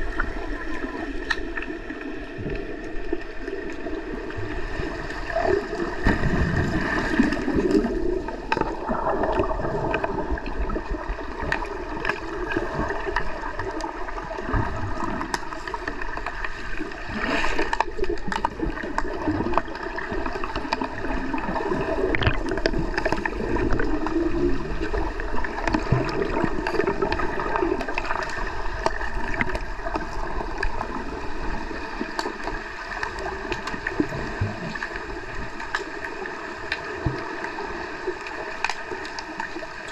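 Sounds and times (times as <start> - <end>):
underwater swirling bubbling water: 0.0 - 39.9
underwater clicks and knocks: 7.3 - 16.6, 17.6 - 24.2, 24.8 - 31.1.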